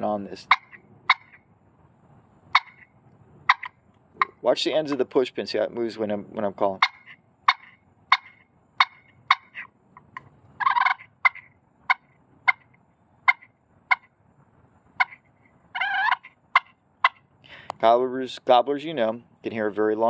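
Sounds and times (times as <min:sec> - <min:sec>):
turkey call clucks: 0:00.4 - 0:01.5, 0:02.5 - 0:04.4, 0:06.7 - 0:14.2, 0:15.0 - 0:17.3.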